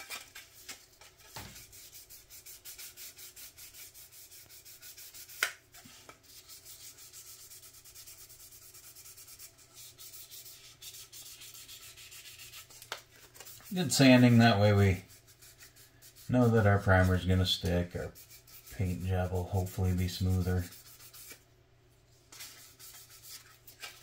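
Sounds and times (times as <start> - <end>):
sandpaper rubbing on plastic: 1.6 - 5.5, 6.2 - 21.4, 22.3 - 24.0.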